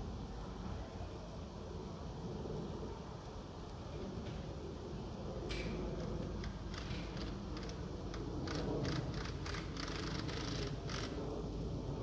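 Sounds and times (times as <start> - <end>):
squirrel clicking and rasping: 6.2 - 11.2.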